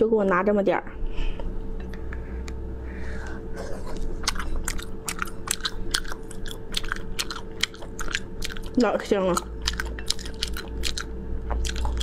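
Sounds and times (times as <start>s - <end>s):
faint steady hum: 0.0s - 12.0s
person chewing wetly: 3.2s - 12.0s.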